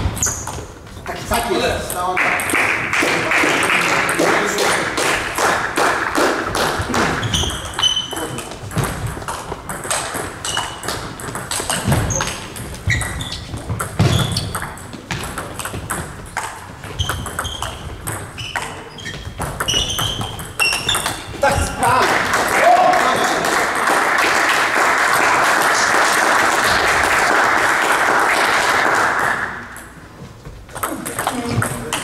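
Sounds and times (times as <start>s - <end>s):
shoes squeaking on floor: 0.0s - 1.0s, 6.8s - 22.0s
table tennis balls clicking: 6.0s - 22.0s, 29.6s - 32.0s.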